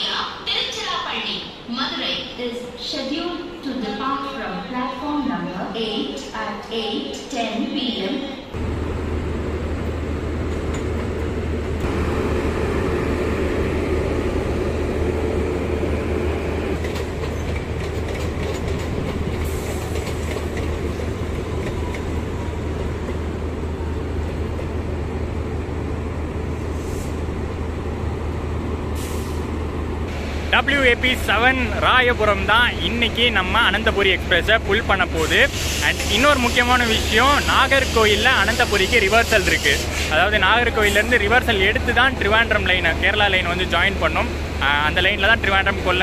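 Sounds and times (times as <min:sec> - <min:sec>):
electric locomotive humming: 0:08.4 - 0:46.0
train wheels clicking over rail joints: 0:16.8 - 0:23.2.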